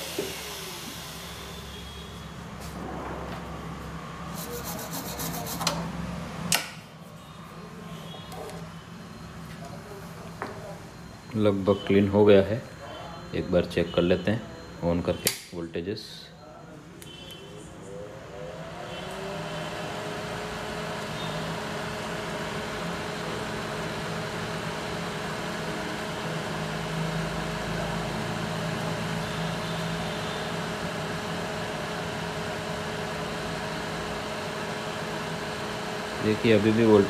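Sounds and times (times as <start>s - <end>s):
cooling fan spinning up: 0.0s - 6.8s, 17.8s - 37.0s.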